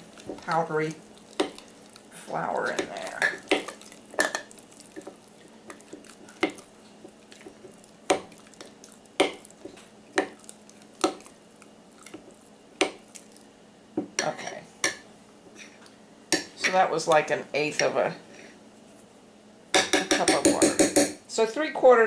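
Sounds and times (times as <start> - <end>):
spoon stirring thick batter: 0.0 - 13.4.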